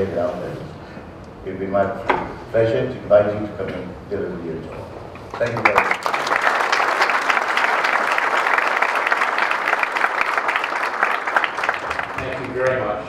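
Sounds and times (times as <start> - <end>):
large audience applauding: 5.3 - 13.0.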